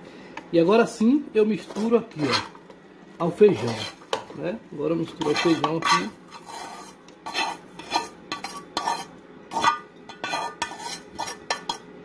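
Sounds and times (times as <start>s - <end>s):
spoon scraping metal frying pan: 1.6s - 2.6s, 3.5s - 4.3s, 5.1s - 11.9s.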